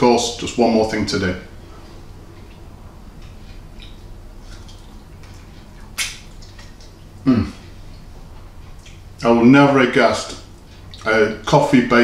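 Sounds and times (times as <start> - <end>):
mouth chewing sounds: 2.3 - 9.2, 10.5 - 11.1
man humming approvingly: 7.2 - 7.6.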